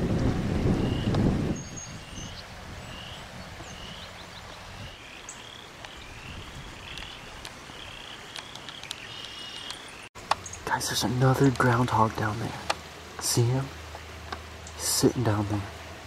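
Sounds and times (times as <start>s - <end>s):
wind rumble on microphone: 0.0s - 5.0s, 5.8s - 8.9s
short high chirping calls: 0.8s - 10.6s.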